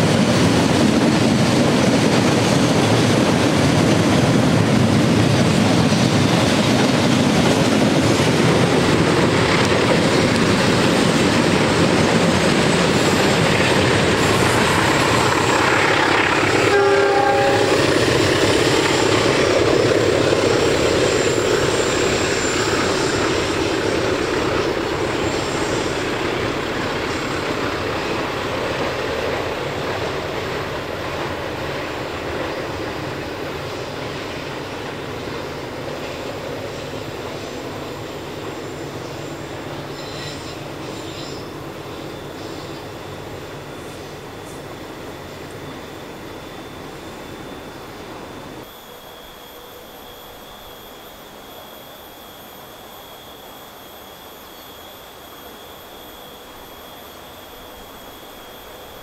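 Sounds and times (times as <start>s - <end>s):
freight train wheels rumbling on rails: 0.0s - 59.0s
locomotive horn blast: 16.6s - 17.8s.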